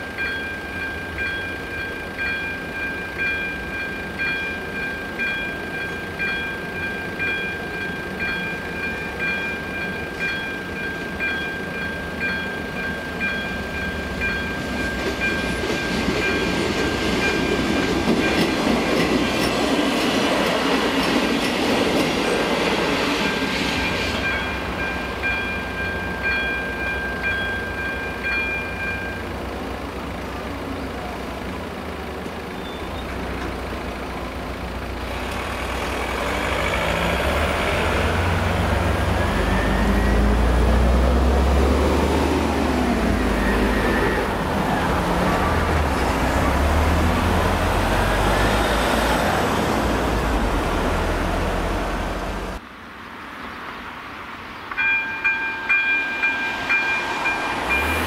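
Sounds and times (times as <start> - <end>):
vehicles driving over crossing: 11.0 - 52.6, 53.6 - 58.0.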